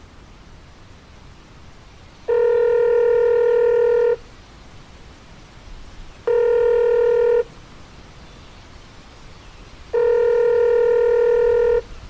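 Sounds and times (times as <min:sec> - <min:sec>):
long electronic beeps: 0:10.0 - 0:11.8.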